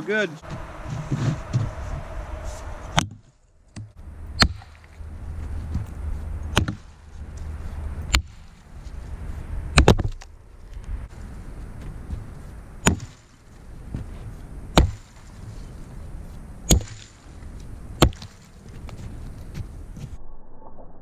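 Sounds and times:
axe chopping log: 0:02.9 - 0:04.9, 0:06.5 - 0:07.0, 0:08.0 - 0:08.6, 0:09.7 - 0:10.3, 0:12.8 - 0:13.4, 0:14.7 - 0:15.4, 0:16.7 - 0:17.3, 0:18.0 - 0:19.0.

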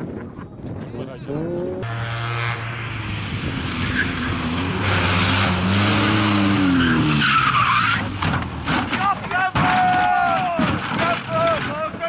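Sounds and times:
car engine revving hard: 0:01.8 - 0:08.1
tyre squeal: 0:06.5 - 0:08.3.

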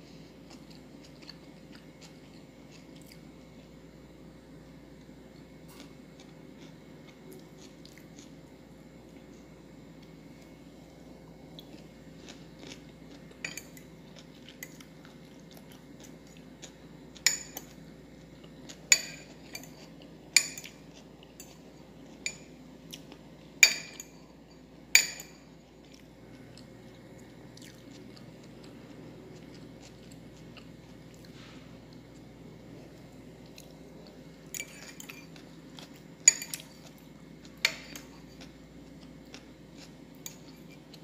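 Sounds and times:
cutlery clinking against glass bowl: 0:13.4 - 0:13.8, 0:17.2 - 0:17.8, 0:18.9 - 0:20.8, 0:22.2 - 0:22.6, 0:23.6 - 0:25.5, 0:34.5 - 0:36.9.

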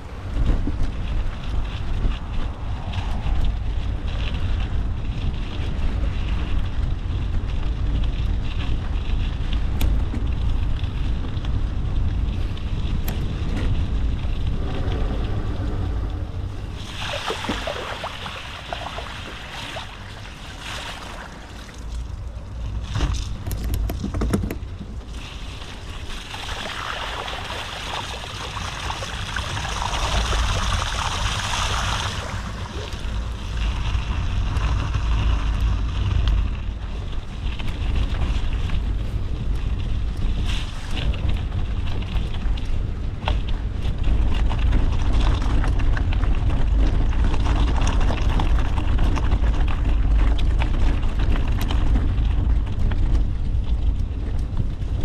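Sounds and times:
vehicle driving on dirt track: 0:00.0 - 0:55.0
wind noise on microphone: 0:00.0 - 0:55.0
vehicle splashing through water: 0:14.5 - 0:22.1, 0:25.4 - 0:35.9.

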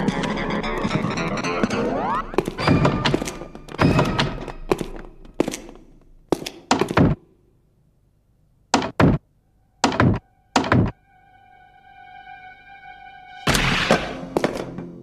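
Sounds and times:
steady pitched tone: 0:09.4 - 0:14.4.

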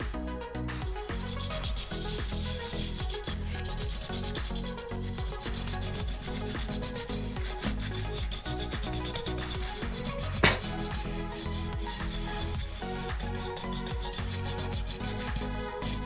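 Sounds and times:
toothbrush scrubbing circuit board: 0:01.1 - 0:16.0
sharp knock: 0:10.4 - 0:10.7.

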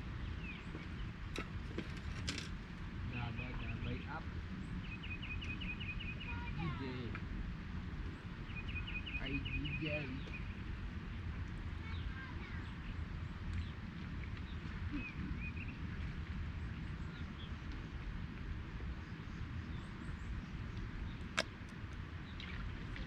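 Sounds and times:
bird chirps: 0:04.8 - 0:06.8, 0:08.5 - 0:10.6.

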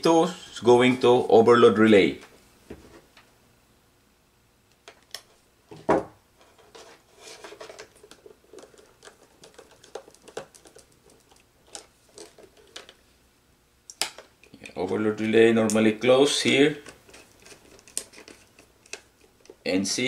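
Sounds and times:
hands handling wires and fittings: 0:06.4 - 0:13.0, 0:16.4 - 0:19.6.

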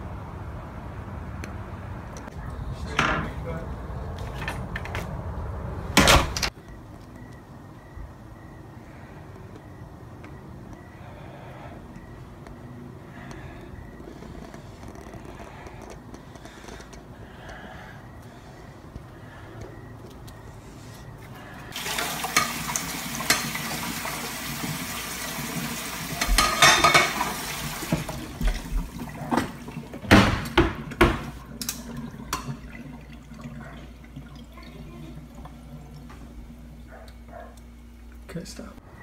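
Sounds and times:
water running: 0:21.7 - 0:36.8.

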